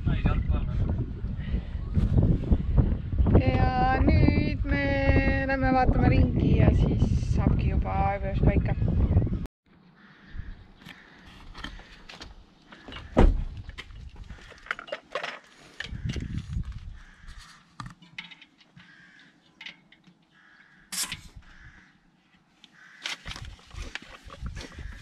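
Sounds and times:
handling knocks and clatter: 11.4s - 16.7s, 17.8s - 18.9s, 23.0s - 25.0s
loud thump: 13.2s - 13.6s.

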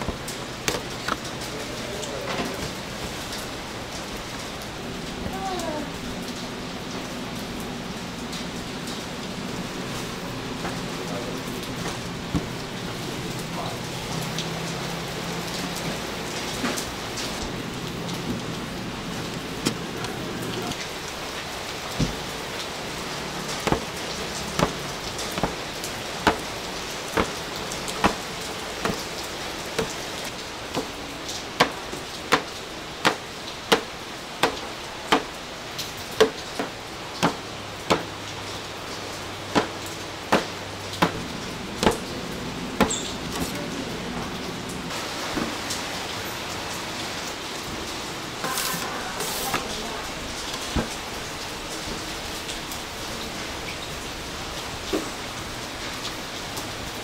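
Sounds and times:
hot oil sizzling: 20.6s - 43.5s.

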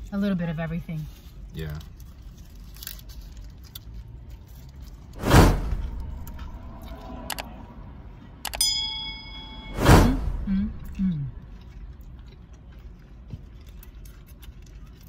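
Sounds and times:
paper wrapper rustling: 1.3s - 5.2s
whoosh: 5.1s - 11.4s
bell ding: 8.5s - 10.2s.

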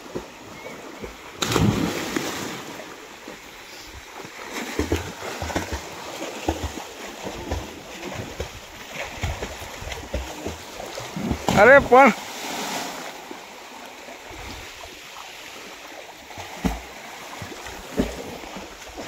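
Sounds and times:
swimmers splashing water: 0.0s - 13.6s
loud splash into pool: 1.4s - 2.8s.

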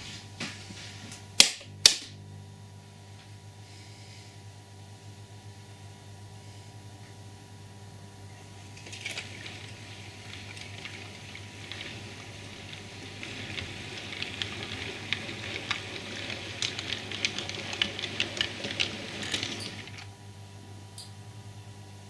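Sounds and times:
clicks over rail joints: 8.6s - 20.1s
model train wheels hissing on rail: 8.8s - 20.1s.

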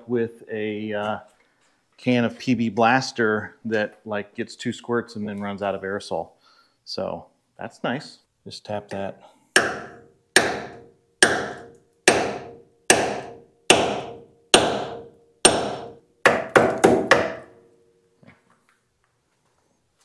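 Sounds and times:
hammer striking steel: 9.6s - 17.6s.

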